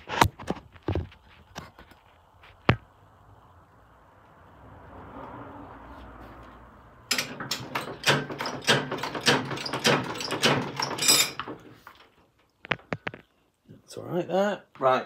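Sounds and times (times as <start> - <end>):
motorbike drivetrain rattling and knocking: 7.1 - 12.0.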